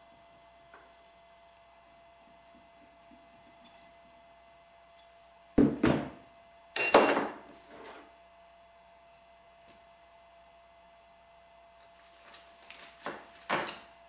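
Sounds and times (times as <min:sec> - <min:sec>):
metal parts clattering on wood: 0:13.4 - 0:14.0.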